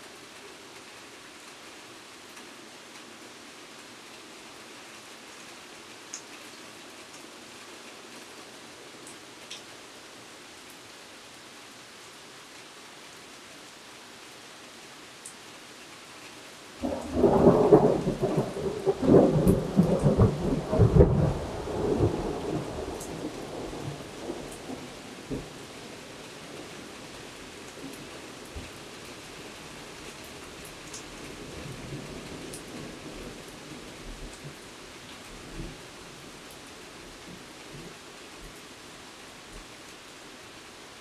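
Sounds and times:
steady rain: 0.0s - 41.0s
thunder rumbling: 16.8s - 25.5s.

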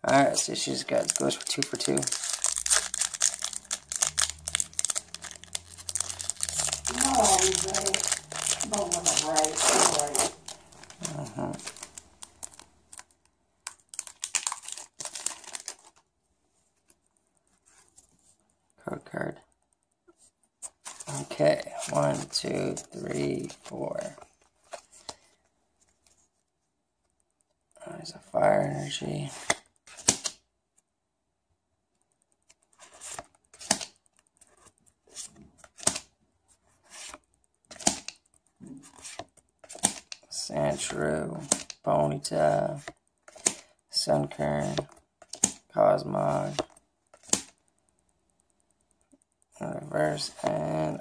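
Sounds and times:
foil wrapper crinkling and tearing: 0.8s - 16.0s
cards snapping: 29.4s - 30.4s, 32.9s - 34.0s, 35.2s - 36.1s, 37.0s - 38.2s, 39.0s - 40.3s, 41.4s - 41.8s, 43.3s - 43.6s, 44.7s - 45.6s, 46.5s - 47.6s.

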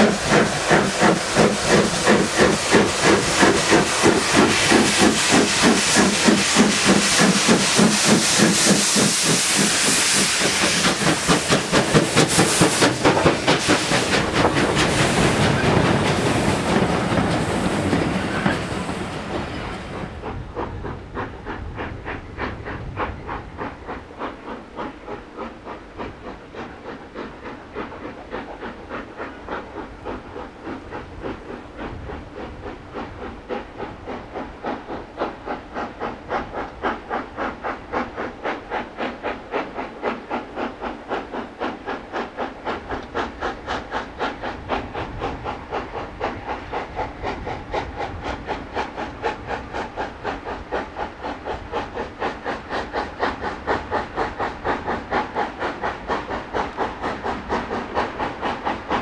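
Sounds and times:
steam locomotive chuffing: 0.0s - 59.0s.

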